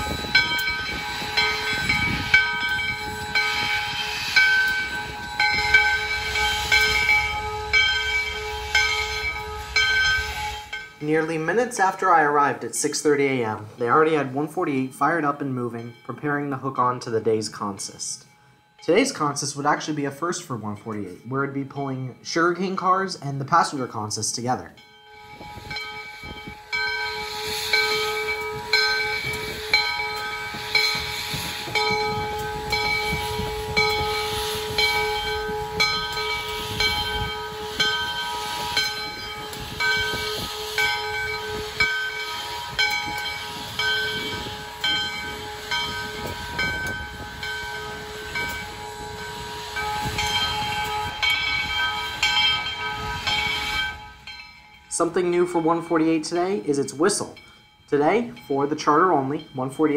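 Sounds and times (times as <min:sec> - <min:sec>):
steady ringing tone: 0:00.0 - 0:11.5, 0:24.7 - 0:56.2, 0:56.9 - 0:59.9
steam locomotive hissing and chugging: 0:00.0 - 0:59.9.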